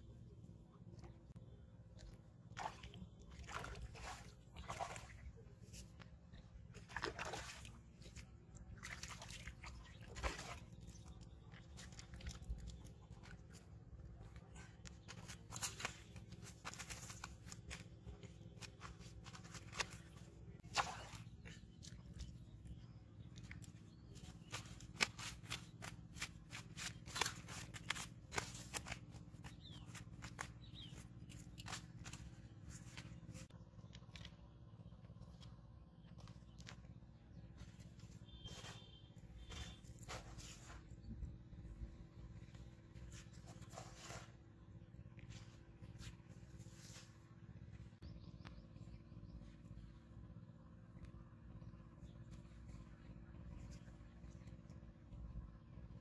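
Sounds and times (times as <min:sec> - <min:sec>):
fish splashing in water: 0:06.7 - 0:13.5, 0:19.6 - 0:22.2.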